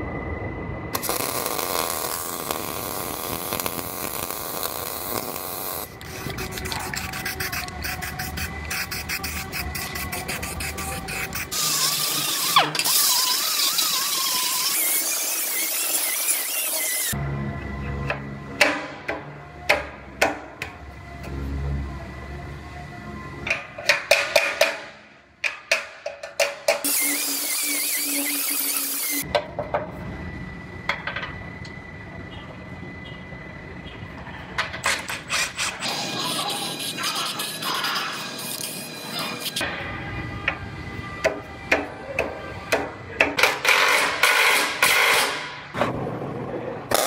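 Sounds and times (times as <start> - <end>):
faint steady whine: 0.0 - 11.5, 29.2 - 34.7
pneumatic cut-off tool cutting steel: 1.0 - 17.2, 26.8 - 29.2, 43.4 - 45.6
background music: 17.2 - 24.3.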